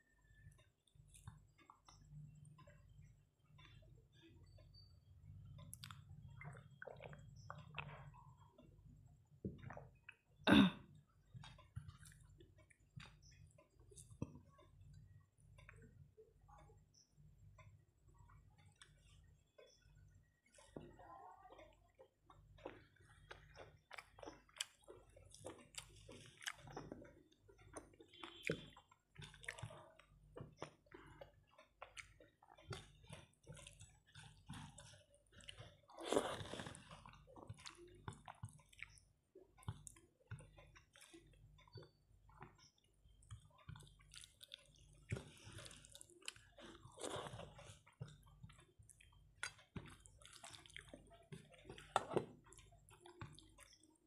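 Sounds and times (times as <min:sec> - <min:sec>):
chewing and wet mouth sounds: 0:00.0 - 0:54.0
fingers squishing rice on plate: 0:21.6 - 0:54.0.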